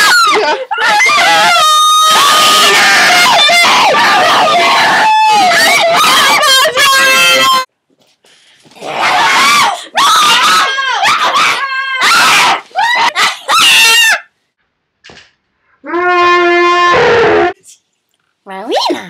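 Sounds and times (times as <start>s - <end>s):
girls screaming: 0.0s - 7.7s, 8.8s - 14.3s.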